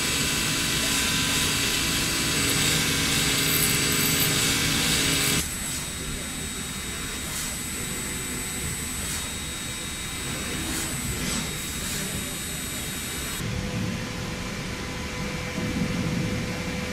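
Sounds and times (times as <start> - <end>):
milling machine running: 0.0 - 13.4.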